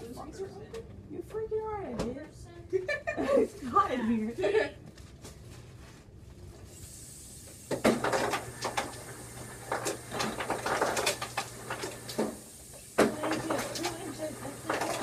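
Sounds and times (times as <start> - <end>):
kitchen items clattering: 7.8 - 12.2, 13.0 - 15.0.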